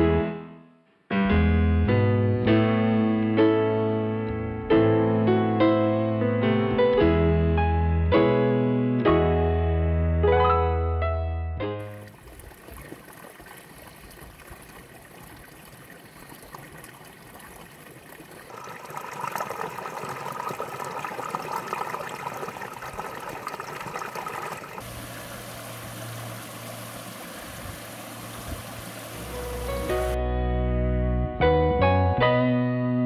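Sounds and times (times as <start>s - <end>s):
stream water splashing over rocks: 11.8s - 30.2s.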